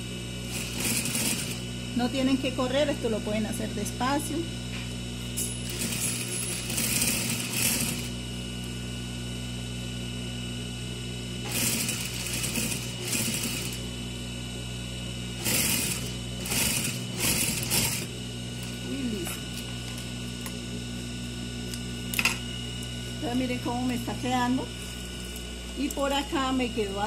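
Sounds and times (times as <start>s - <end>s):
sewing machine motor hum: 0.0s - 4.4s, 5.3s - 9.6s, 10.5s - 27.0s
sewing machine stitching: 0.5s - 1.6s, 5.6s - 8.1s, 11.4s - 13.8s, 15.4s - 18.1s.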